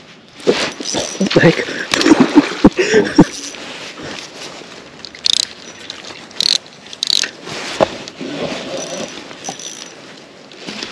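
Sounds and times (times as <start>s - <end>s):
fishing reel drag ratcheting: 5.1s - 7.4s.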